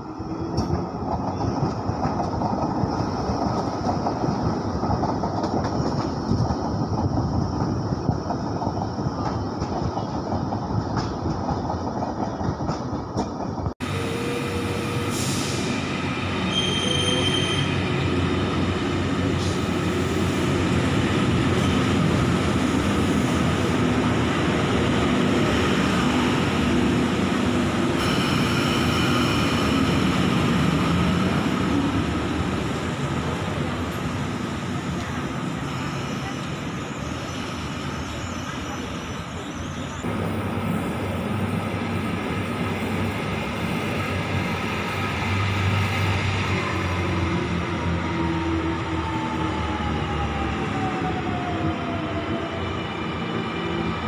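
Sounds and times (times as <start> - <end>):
train rolling past: 0.0 - 54.0
train wheel squeal: 13.9 - 18.1, 28.0 - 30.6, 35.5 - 40.1.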